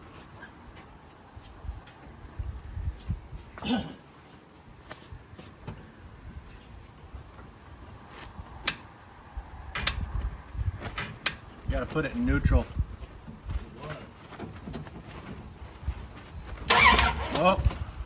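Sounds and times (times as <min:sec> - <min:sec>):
person grunting: 0:03.6 - 0:04.0
tools clicking on engine parts: 0:09.7 - 0:10.0.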